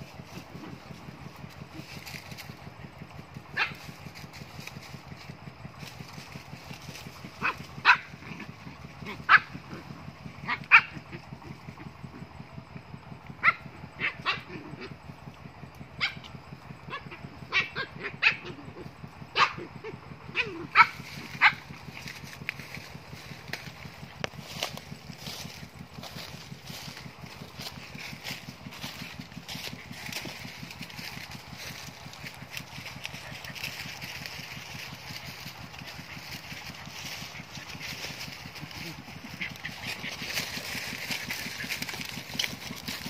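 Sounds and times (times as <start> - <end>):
low motor hum: 0.0 - 43.0
dog barking: 3.5 - 3.8, 7.4 - 8.2, 9.0 - 9.6, 10.4 - 11.0, 13.4 - 14.9, 16.0 - 16.3, 16.9 - 19.7, 20.3 - 21.6.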